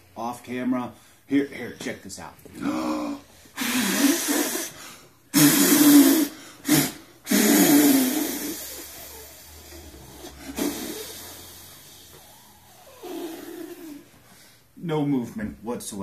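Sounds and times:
man blowing forceful breaths: 0:02.6 - 0:14.8.

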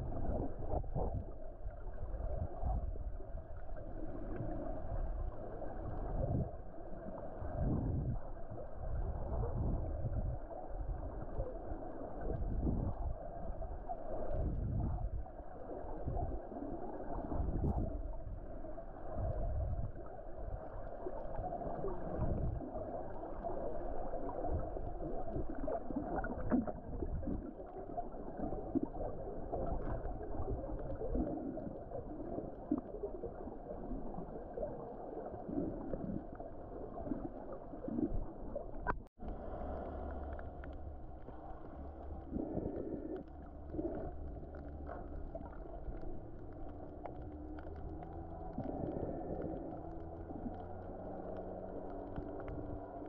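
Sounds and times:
low underwater rumbles: 0:00.0 - 0:53.0
water sloshing and gurgling: 0:00.0 - 0:53.0
steady low hum: 0:38.1 - 0:53.0.

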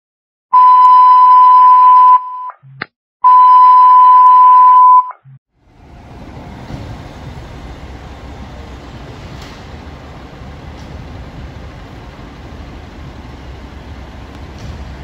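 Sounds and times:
low vehicle and street rumble: 0:05.5 - 0:15.0.

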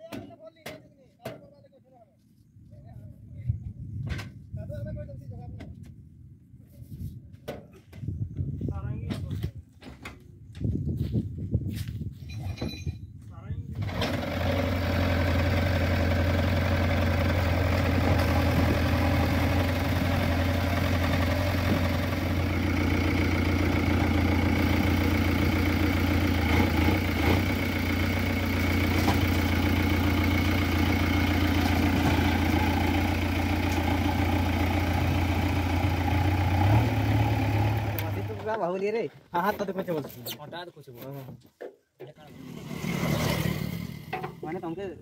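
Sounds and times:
diesel engine running: 0:13.8 - 0:38.6.

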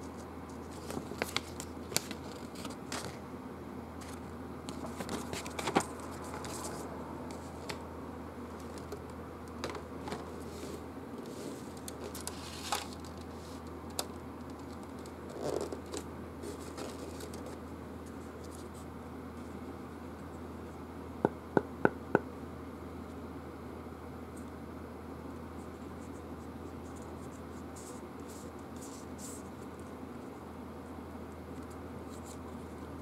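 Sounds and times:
paper and cardboard handling noise: 0:00.0 - 0:03.2, 0:04.0 - 0:07.8, 0:08.5 - 0:19.6
steady low hum: 0:00.0 - 0:33.0.

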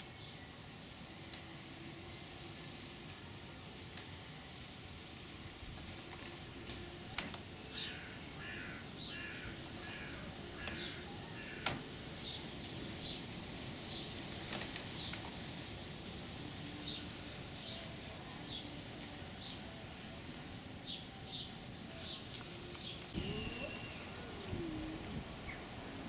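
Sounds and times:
background hiss: 0:00.0 - 0:26.0
birds chirping: 0:05.9 - 0:19.8, 0:20.8 - 0:25.9.

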